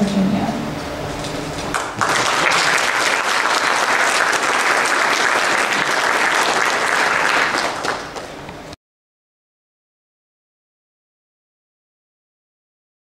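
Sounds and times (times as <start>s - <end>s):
audience applauding: 1.7s - 8.4s.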